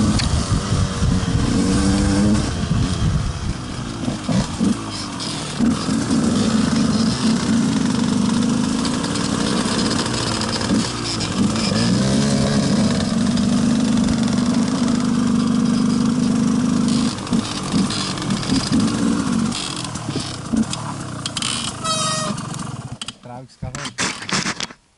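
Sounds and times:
motorcycle engine running: 0.0s - 23.0s
motorcycle throttle blips: 0.0s - 23.8s.

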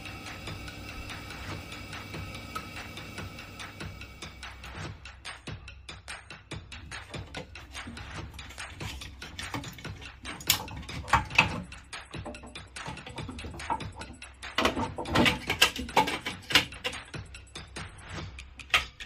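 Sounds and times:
plastic connectors clicking and rattling: 7.0s - 17.1s.

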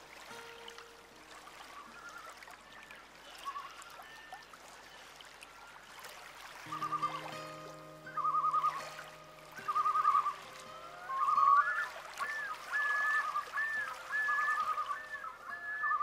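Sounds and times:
soft background music: 0.0s - 16.0s
watery flowing ambience: 0.0s - 16.0s
warbling bird-like trills: 6.7s - 16.0s.

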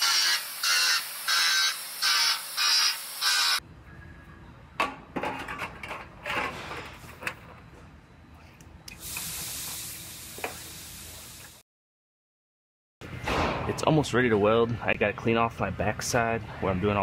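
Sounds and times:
belt sander grinding metal: 0.0s - 3.6s.

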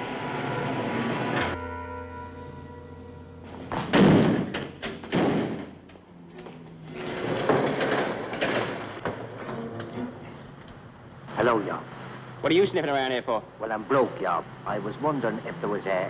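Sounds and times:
heavy thuds and bangs: 3.5s - 5.8s.

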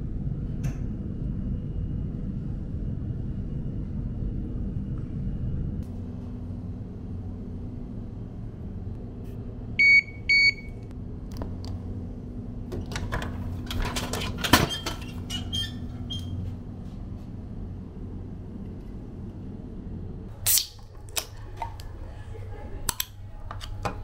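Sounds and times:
vending machine beeps: 9.8s - 10.8s.

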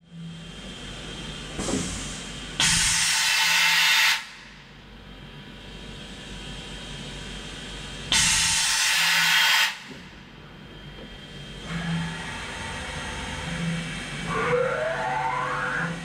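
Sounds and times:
machine air hissing bursts: 8.1s - 9.9s
machine hum: 10.0s - 16.0s.

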